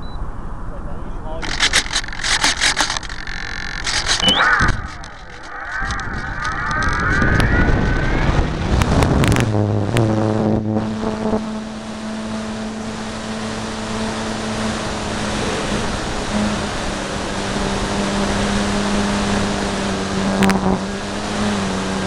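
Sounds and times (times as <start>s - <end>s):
electric motor and propeller whine: 1.4s - 22.0s
wind rushing: 3.7s - 10.8s.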